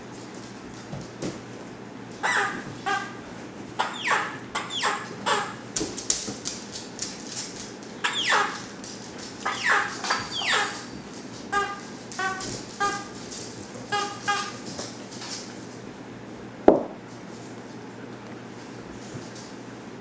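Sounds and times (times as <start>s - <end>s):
puppies yelping and squealing: 2.2s - 3.2s, 3.8s - 5.6s, 8.0s - 8.7s, 9.4s - 11.0s.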